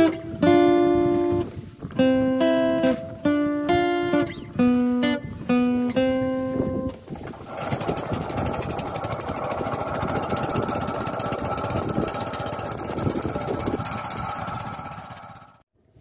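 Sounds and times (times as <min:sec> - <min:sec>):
plucked guitar notes: 0:00.0 - 0:07.2
boat engine chugging: 0:07.1 - 0:15.6.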